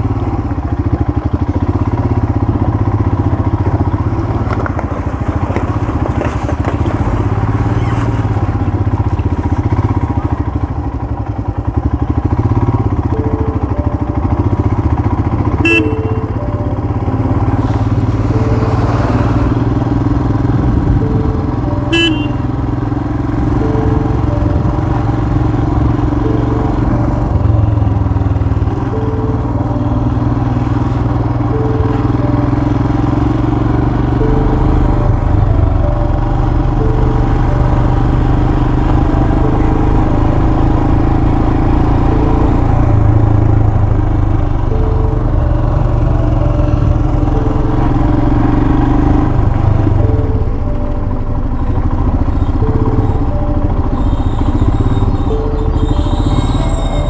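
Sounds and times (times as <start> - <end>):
motorcycle clatter on brick road: 0.0 - 13.3
motorcycle engine running: 0.0 - 57.0.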